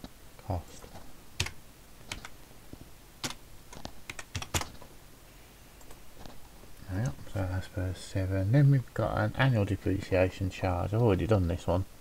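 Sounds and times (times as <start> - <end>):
typing on computer keyboard: 1.4 - 2.4, 3.2 - 4.8.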